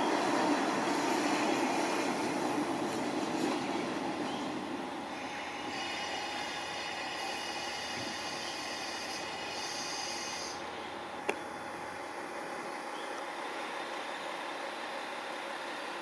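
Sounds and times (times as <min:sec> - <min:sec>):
train running on rails: 0:00.0 - 0:16.0
high thin squeal: 0:05.2 - 0:10.6.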